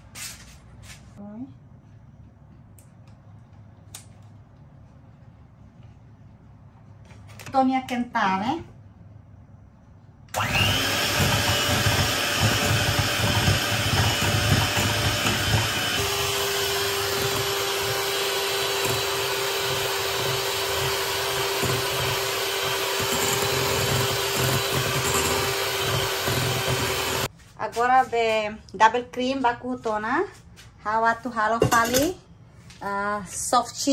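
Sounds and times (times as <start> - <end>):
electric hand mixer whipping cream: 10.4 - 27.3.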